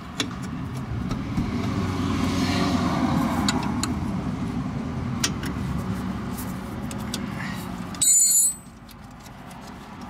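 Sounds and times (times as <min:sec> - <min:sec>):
motor vehicle passing: 0:00.6 - 0:07.6.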